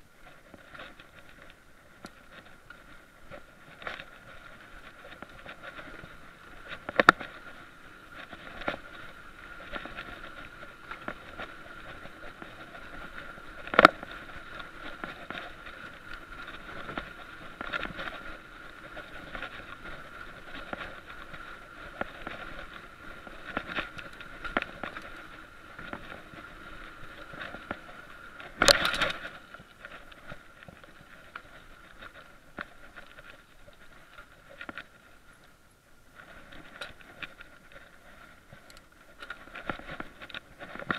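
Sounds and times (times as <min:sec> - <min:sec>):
bike clicks and rattles: 0:00.0 - 0:40.9.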